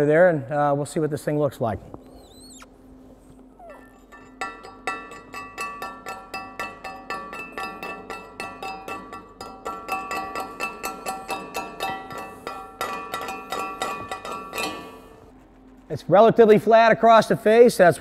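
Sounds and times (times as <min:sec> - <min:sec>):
metal plate ringing: 0:03.7 - 0:15.3
hammer striking steel plate: 0:04.1 - 0:15.3.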